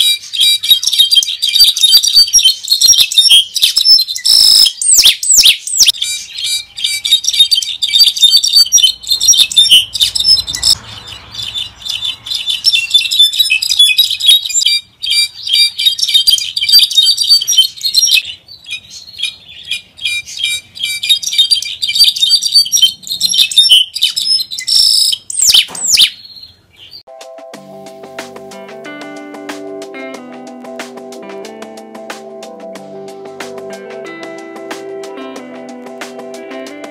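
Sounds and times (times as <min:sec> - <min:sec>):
bird singing high notes: 0:00.0 - 0:26.4.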